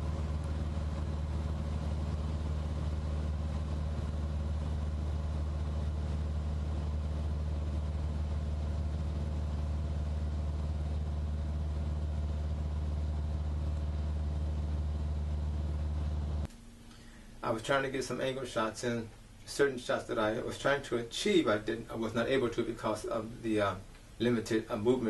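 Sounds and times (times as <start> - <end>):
aircraft engine droning in cabin: 0.0 - 16.5.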